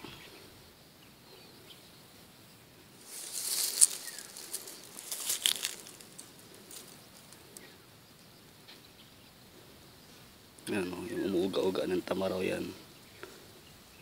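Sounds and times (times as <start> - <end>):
close rustling and crinkling: 3.0 - 7.7.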